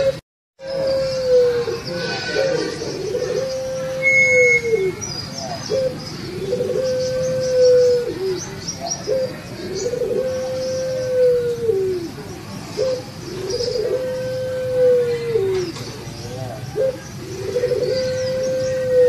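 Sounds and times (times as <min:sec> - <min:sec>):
dove cooing: 0:00.0 - 0:19.0
small birds chirping: 0:04.4 - 0:11.2, 0:11.8 - 0:14.0, 0:15.3 - 0:19.0.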